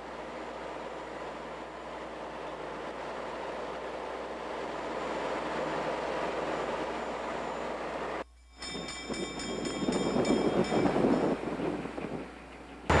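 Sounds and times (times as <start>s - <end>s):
locomotive bell ringing: 7.0s - 13.0s.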